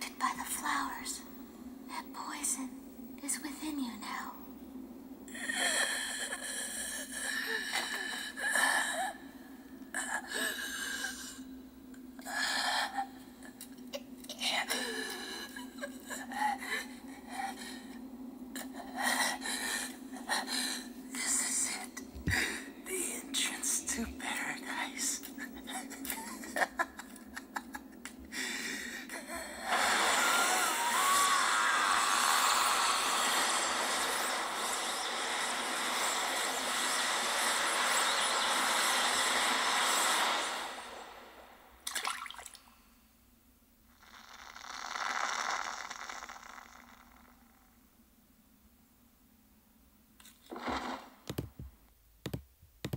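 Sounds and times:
steady low hum: 0:00.0 - 0:39.6
splash in water: 0:41.9 - 0:42.6.

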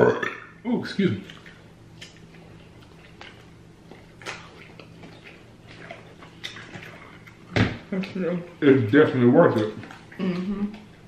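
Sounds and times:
faint steady hum: 0:00.0 - 0:11.0
chewing with crunches: 0:01.2 - 0:07.6, 0:09.5 - 0:11.0.

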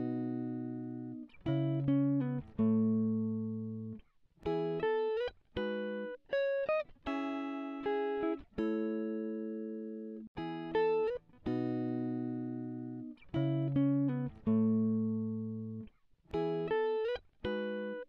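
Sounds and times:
guitar music: 0:00.0 - 0:18.0.

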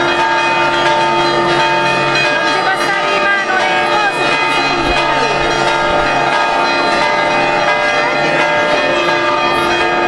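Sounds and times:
church bells ringing: 0:00.0 - 0:10.0.

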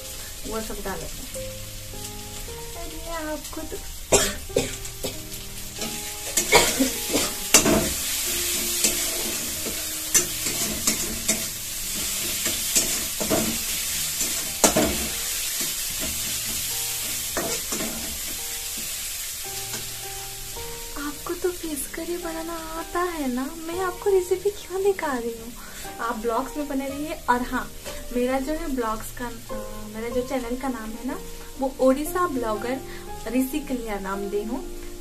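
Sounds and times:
masala sizzling in hot oil: 0:00.0 - 0:35.0
spatula scraping and knocking pan: 0:05.8 - 0:18.9.

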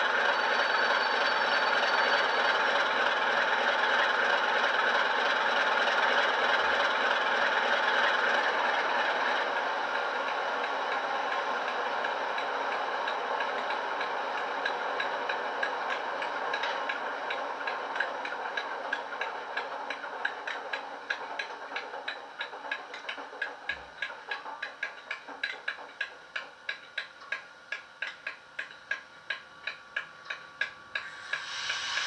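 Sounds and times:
model locomotive engine sound: 0:00.0 - 0:32.0
steady ticking: 0:12.4 - 0:32.0.

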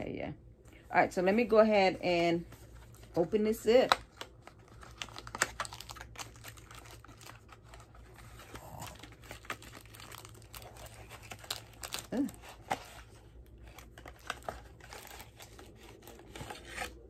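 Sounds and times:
paper rustling and crinkling: 0:02.4 - 0:17.0.

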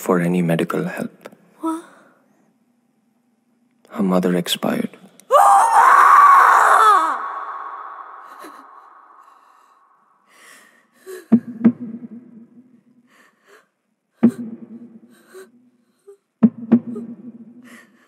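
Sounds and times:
woman gasping sobs: 0:01.6 - 0:02.2, 0:08.0 - 0:09.8, 0:10.4 - 0:11.6, 0:13.2 - 0:18.0
woman wailing: 0:05.3 - 0:09.1.

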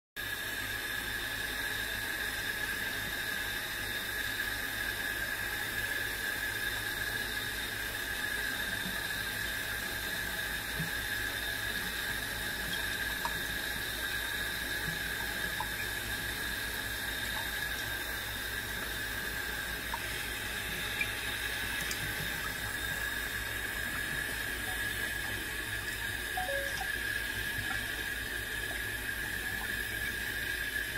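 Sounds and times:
water running into sink: 0:09.0 - 0:30.9.

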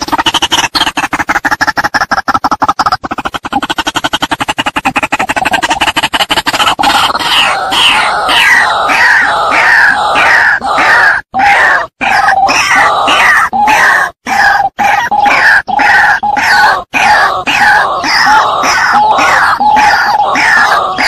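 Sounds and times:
waterhen harsh repeated call: 0:00.0 - 0:21.0.

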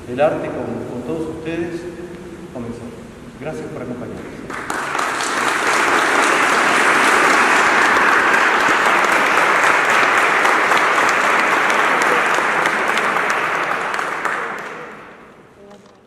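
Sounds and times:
audience applauding: 0:04.5 - 0:15.4.

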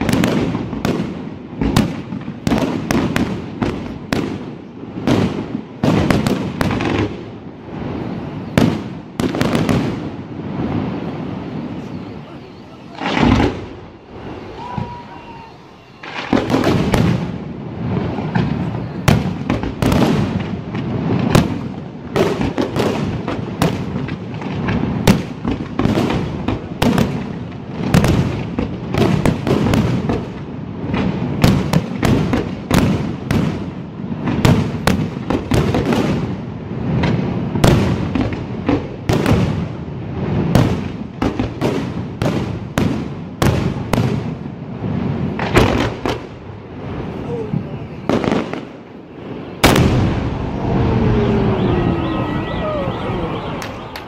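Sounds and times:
fireworks bursting: 0:00.0 - 0:54.0
rumble of overlapping explosions: 0:49.6 - 0:51.6.

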